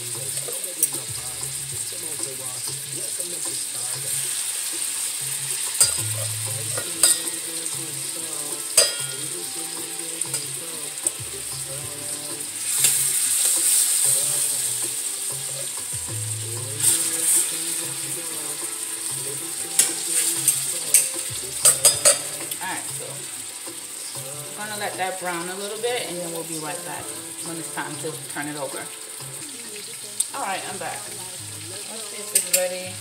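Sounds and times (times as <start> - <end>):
chicken sizzling in oil: 0.0 - 33.0
utensil clicking against pan: 0.3 - 1.1, 19.8 - 22.7, 32.3 - 32.7.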